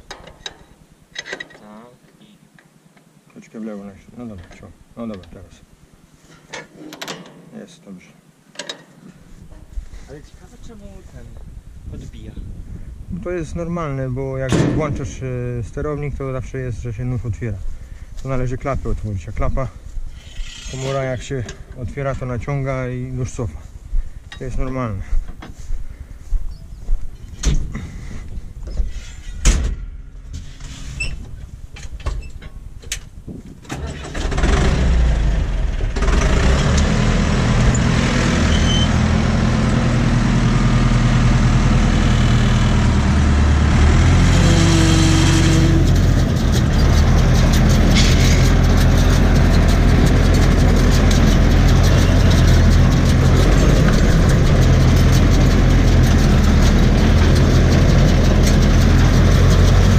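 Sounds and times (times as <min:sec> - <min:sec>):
diesel tractor engine running: 0:33.8 - 0:59.9.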